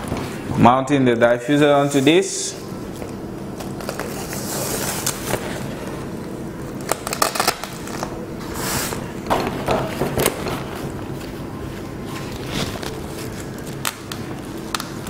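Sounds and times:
steady low hum: 0.0s - 15.0s
fabric rustling and crinkling: 11.1s - 13.8s.

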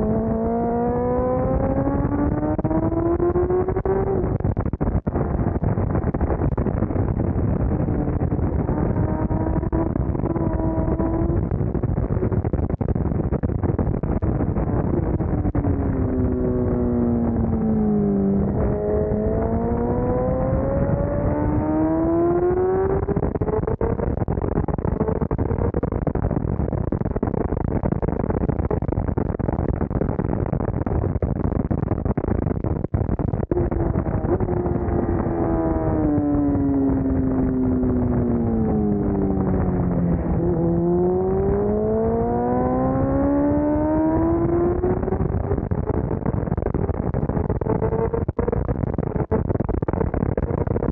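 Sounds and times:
motorcycle engine revving: 0.0s - 4.8s, 7.4s - 11.8s, 14.4s - 24.1s, 33.4s - 46.0s.

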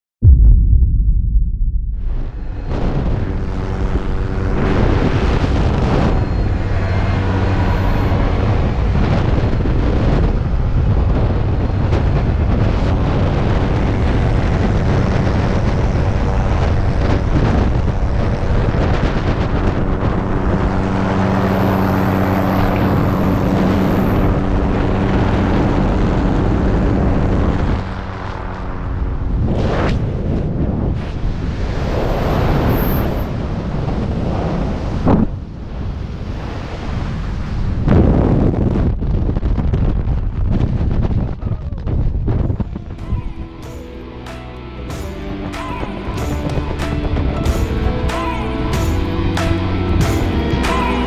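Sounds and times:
wind buffeting microphone: 0.2s - 44.2s
helicopter engine and rotor drone: 2.6s - 29.2s.

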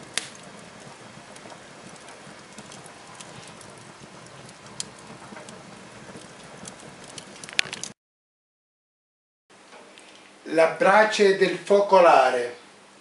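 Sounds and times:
wood fire crackling: 0.0s - 8.0s.

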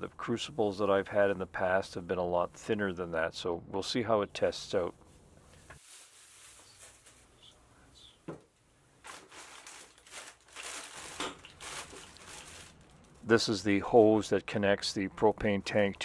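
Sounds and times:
plastic bags crinkling: 5.7s - 7.3s, 9.0s - 13.5s.

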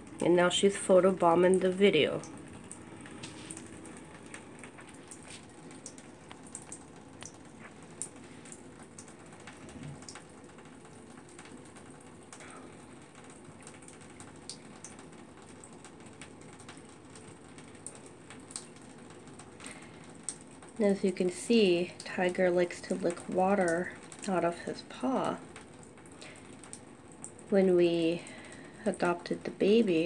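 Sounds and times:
water running from faucet into tub: 0.0s - 30.0s
small irregular clicks: 2.3s - 20.8s, 25.4s - 27.5s.

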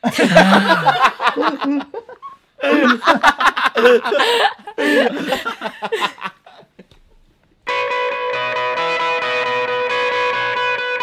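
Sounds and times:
music with electric guitar: 7.7s - 11.0s.

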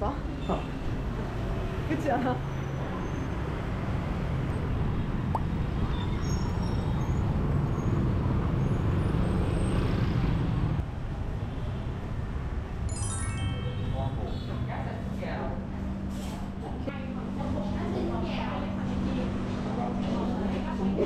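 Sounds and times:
road traffic rumble: 0.1s - 12.9s
faint short high tones: 12.9s - 14.6s.

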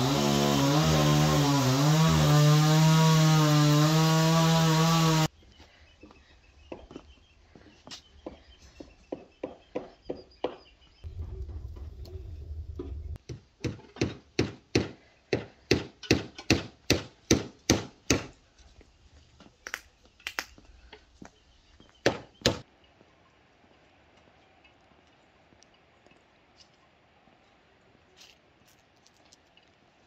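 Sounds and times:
low rumble: 11.1s - 13.2s.

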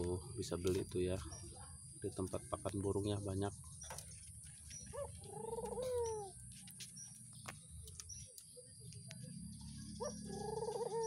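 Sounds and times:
doves cooing: 3.9s - 6.6s, 9.1s - 11.0s.

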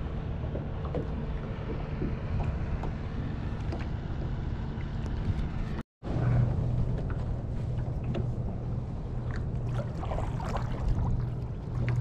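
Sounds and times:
paddle splashing water: 9.3s - 12.0s.

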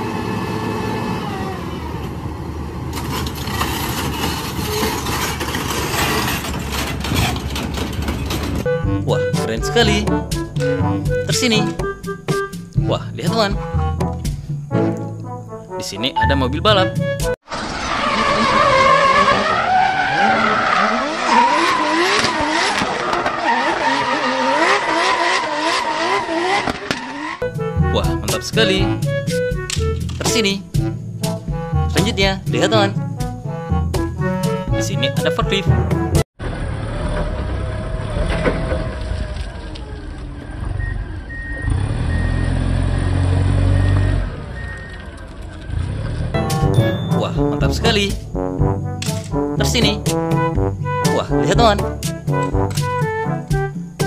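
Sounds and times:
race car engine revving: 0.0s - 8.4s, 17.4s - 27.5s
diesel engine rumbling: 0.0s - 25.4s, 27.1s - 54.0s
tyres squealing: 3.0s - 11.8s, 17.7s - 30.5s
clattering knocks: 3.1s - 8.7s.

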